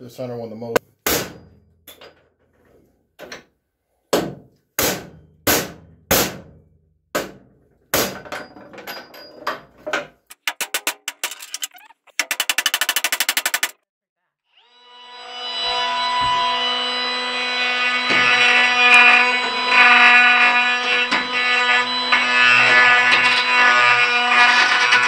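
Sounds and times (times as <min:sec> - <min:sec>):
fast rattling clicks: 0:10.2 - 0:13.8
hammer striking steel spindle: 0:10.3 - 0:13.8.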